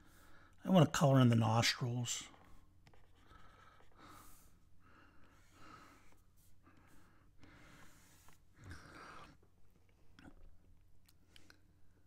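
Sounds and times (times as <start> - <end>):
faint breaths: 2.4 - 9.5.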